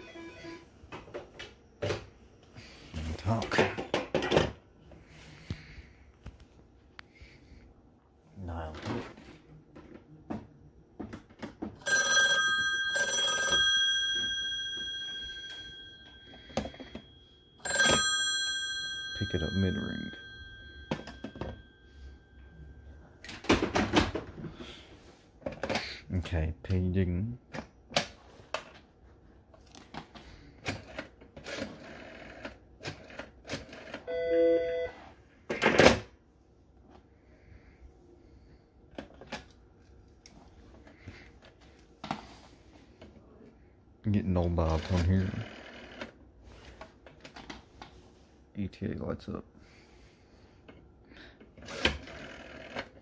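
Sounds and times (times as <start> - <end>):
telephone bell ringing: 0.0 - 0.7, 11.8 - 23.5, 31.6 - 32.6, 33.7 - 35.1, 45.2 - 46.2, 51.7 - 53.0.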